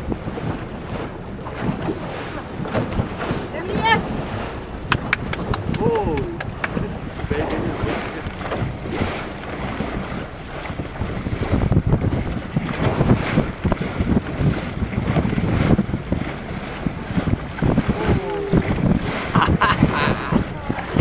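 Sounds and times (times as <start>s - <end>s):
waves splashing: 0.0s - 21.0s
wind buffeting microphone: 0.0s - 21.0s.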